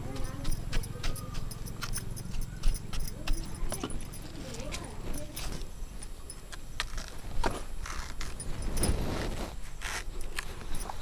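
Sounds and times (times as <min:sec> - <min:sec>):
dry leaves tearing: 0:06.8 - 0:10.7.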